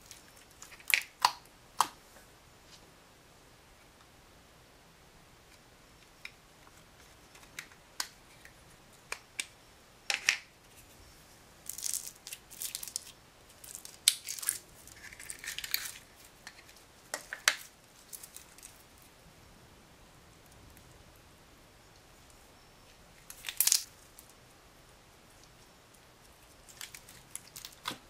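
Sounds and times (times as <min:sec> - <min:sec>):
crackly slime rustling: 0:00.0 - 0:02.0, 0:11.6 - 0:19.1, 0:22.2 - 0:24.4, 0:25.3 - 0:28.0.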